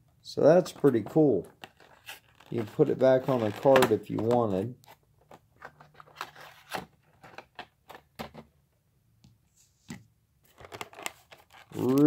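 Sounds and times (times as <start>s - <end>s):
plastic case clicking and rubbing: 10.5s - 12.0s.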